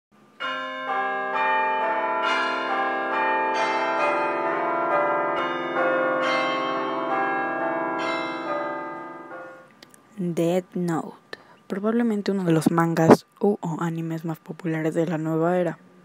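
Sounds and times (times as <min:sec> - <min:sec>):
bell-like chimes melody: 0:00.4 - 0:09.7.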